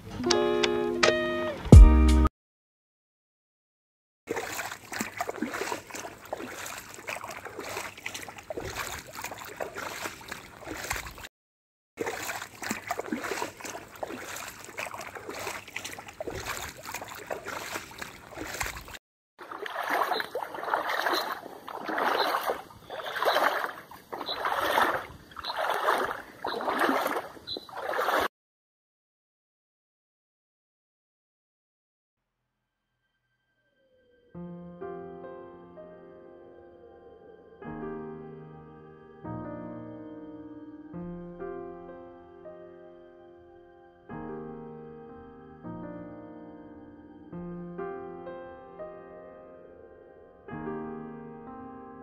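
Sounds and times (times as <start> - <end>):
people wading through water: 4.3 - 11.3, 12.0 - 28.3.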